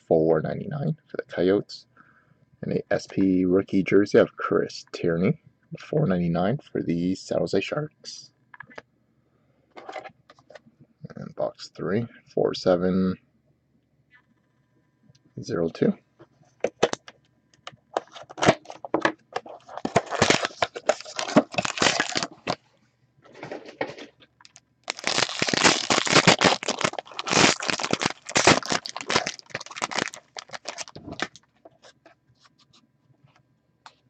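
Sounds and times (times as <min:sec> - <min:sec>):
foil wrapper crinkling and tearing: 0:17.9 - 0:22.6, 0:24.4 - 0:31.4.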